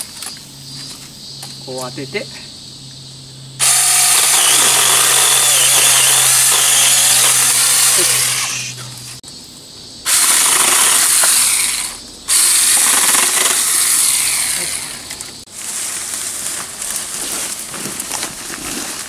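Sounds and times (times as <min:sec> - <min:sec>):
electric chainsaw cutting branch: 0:03.6 - 0:09.2, 0:10.1 - 0:15.5
twigs snapping: 0:15.0 - 0:19.0
branch dragged through undergrowth: 0:15.2 - 0:19.0.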